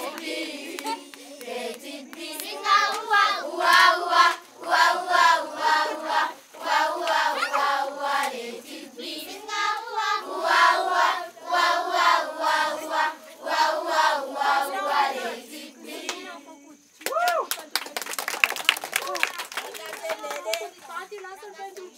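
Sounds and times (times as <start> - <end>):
hand claps: 0.0 - 4.8, 16.0 - 16.2, 17.0 - 20.8
children singing: 0.0 - 16.4.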